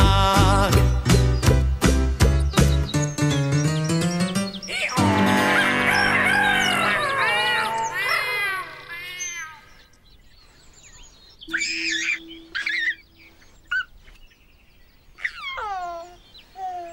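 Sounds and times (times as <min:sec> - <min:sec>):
birds chirping: 0:00.0 - 0:16.9
baby giggling and cooing: 0:11.5 - 0:14.0, 0:15.2 - 0:16.9.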